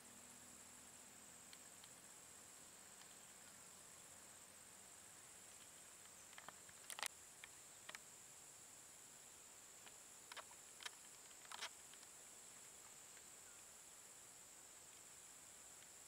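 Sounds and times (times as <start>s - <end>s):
faint high insect chorus: 0.0s - 16.0s
faint clicks: 1.4s - 2.1s, 2.8s - 3.7s, 5.4s - 8.1s, 9.8s - 13.7s, 15.7s - 16.0s.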